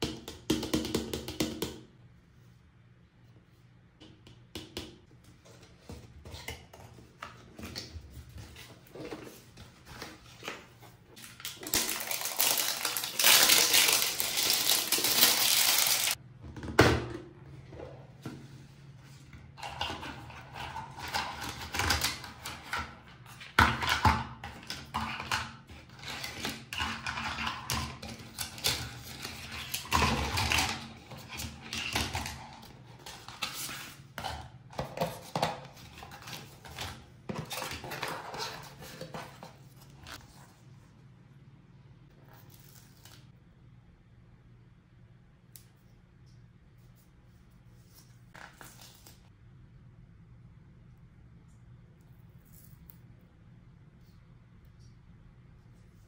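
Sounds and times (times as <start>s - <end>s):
scratchy packaging rustle: 7.4s - 16.2s
plastic toy pieces clattering: 11.4s - 16.2s.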